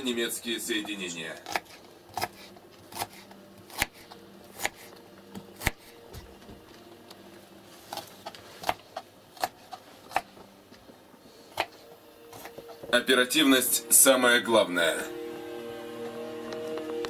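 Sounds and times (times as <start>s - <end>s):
faint steady hum: 0.0s - 17.0s
knife chopping on wooden board: 1.4s - 4.9s, 5.6s - 6.3s.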